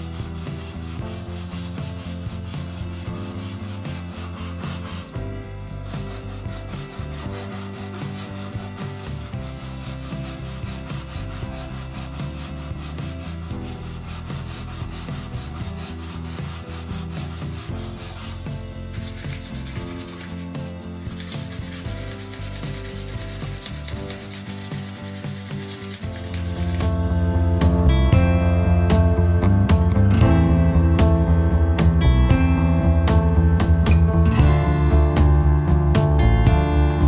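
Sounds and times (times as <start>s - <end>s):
abrasive cloth rubbing on wood: 0.0s - 26.9s
sandpaper rubbed over wood: 0.0s - 27.0s.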